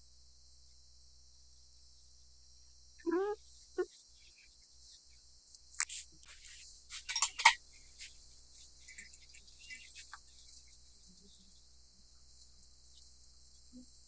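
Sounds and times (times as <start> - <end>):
faint steady hiss: 0.0 - 14.0
light clicks and rustles: 5.6 - 10.8.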